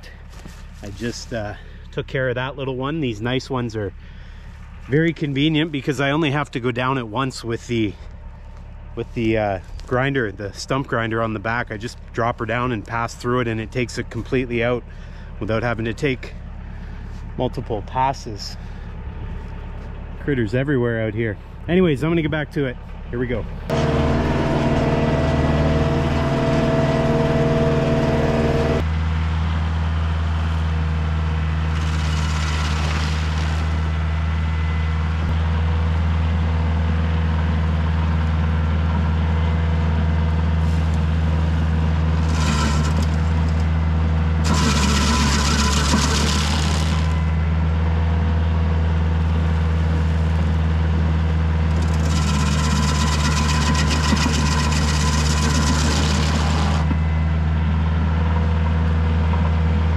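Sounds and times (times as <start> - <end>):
tractor diesel engine running: 0.0 - 59.9
stump grinder grinding wood: 23.4 - 28.9, 31.6 - 34.1, 40.5 - 47.6, 49.1 - 57.1.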